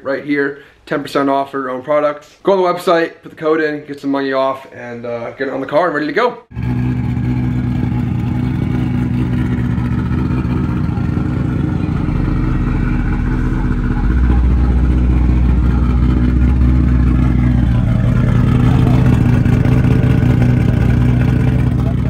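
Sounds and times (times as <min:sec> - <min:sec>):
engine rumbling: 0:06.5 - 0:22.0.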